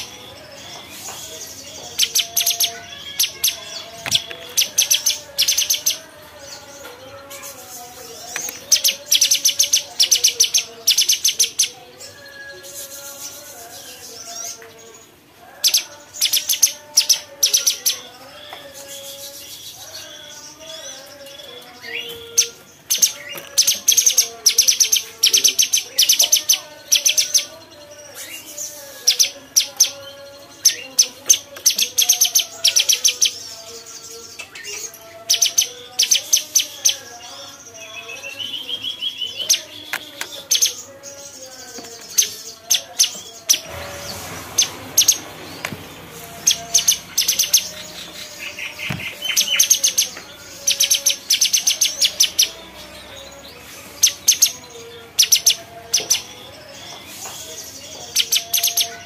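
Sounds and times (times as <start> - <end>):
bulbul singing clicking notes: 0.0 - 6.0.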